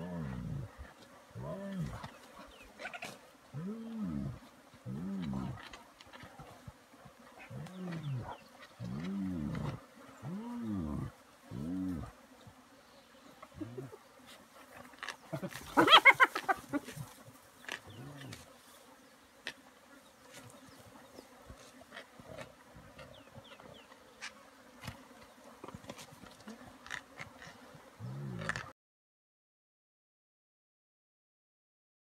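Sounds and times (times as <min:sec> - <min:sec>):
hyenas growling: 0:00.0 - 0:06.6, 0:07.4 - 0:12.2, 0:13.6 - 0:14.0, 0:14.7 - 0:18.4, 0:26.9 - 0:28.7
buzz of flies: 0:00.0 - 0:28.7.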